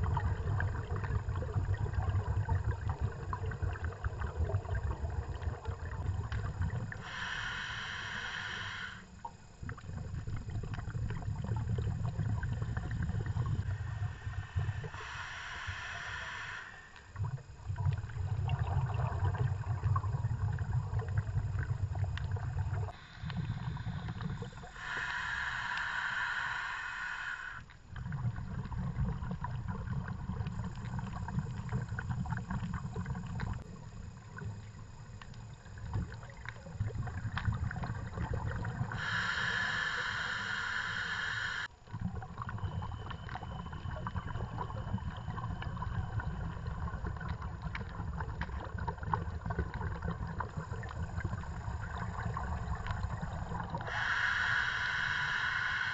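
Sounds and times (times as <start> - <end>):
low bubbling underwater: 0.0 - 8.2, 9.1 - 25.4, 27.9 - 55.9
regulator hissing inhale: 6.9 - 9.3, 13.4 - 17.2, 22.9 - 27.7, 38.8 - 41.8, 51.8 - 55.9
fine crackle of clicks: 21.1 - 22.6, 30.3 - 38.0.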